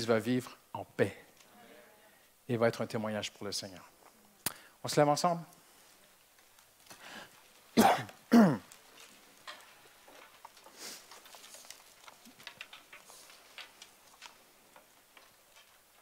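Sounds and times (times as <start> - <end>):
person coughing: 7.8 - 8.6.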